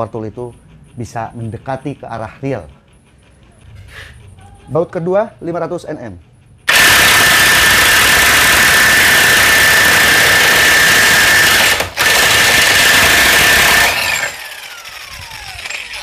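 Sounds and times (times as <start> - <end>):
impact wrench hammering: 6.7 - 14.8.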